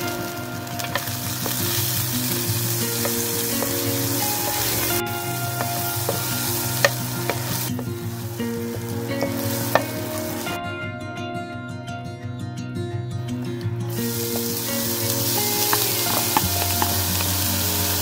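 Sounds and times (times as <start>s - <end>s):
margarine sizzling in frying pan: 0.0s - 10.6s, 14.0s - 18.0s
spatula stirring in pan: 0.7s - 7.9s, 8.8s - 10.5s
spatula tapping on pan: 2.9s - 7.9s, 9.2s - 10.1s.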